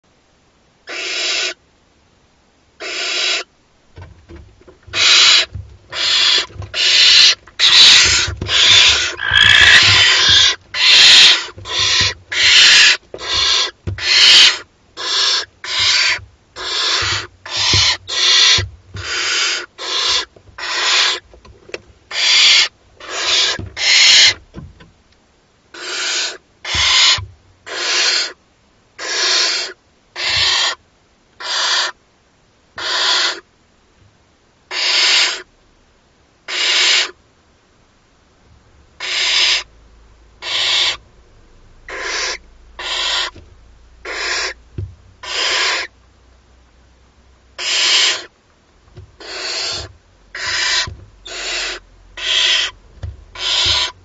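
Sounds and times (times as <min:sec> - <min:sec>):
owl chicks rasping begging calls: 0:00.9 - 0:01.6, 0:02.8 - 0:03.5, 0:04.9 - 0:21.2, 0:22.1 - 0:24.4, 0:25.7 - 0:28.4, 0:29.0 - 0:30.8, 0:31.4 - 0:32.0, 0:32.8 - 0:33.4, 0:34.7 - 0:35.5, 0:36.5 - 0:37.2, 0:39.0 - 0:39.7, 0:40.4 - 0:41.0, 0:41.9 - 0:43.4, 0:44.0 - 0:44.6, 0:45.2 - 0:45.9, 0:47.6 - 0:48.3, 0:49.2 - 0:54.0.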